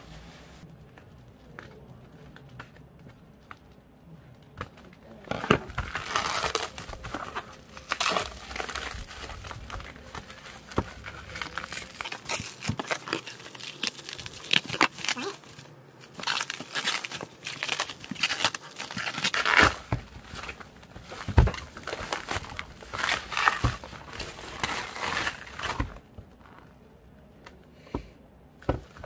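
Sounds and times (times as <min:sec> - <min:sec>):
bubble wrap crinkling: 0:04.8 - 0:26.9.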